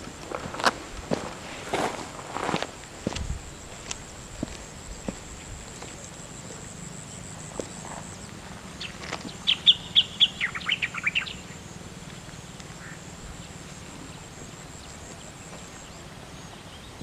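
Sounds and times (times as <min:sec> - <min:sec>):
faint outdoor background: 0:00.0 - 0:17.0
bird singing: 0:04.8 - 0:17.0.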